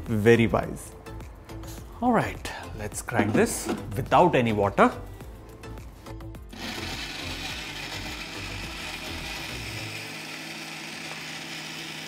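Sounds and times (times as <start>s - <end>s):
mixer grinder motor running: 6.5s - 12.0s.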